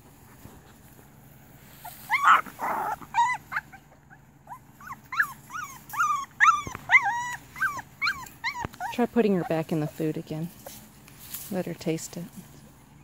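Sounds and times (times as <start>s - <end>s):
puppy whimpering: 1.8s - 10.0s.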